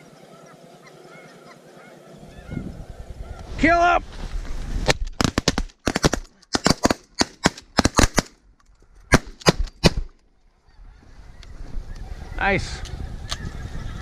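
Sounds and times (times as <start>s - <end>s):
shotgun shots: 5.2s - 8.3s, 9.1s - 10.1s.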